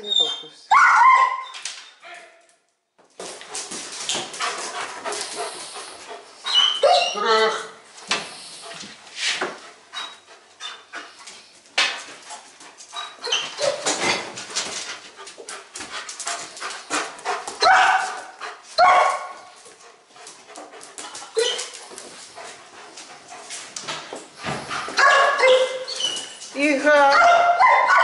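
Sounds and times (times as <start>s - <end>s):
dog whining: 6.4s - 7.8s, 21.3s - 21.8s, 25.0s - 26.5s
dog barking: 17.6s - 19.4s, 25.0s - 25.8s, 27.1s - 28.0s.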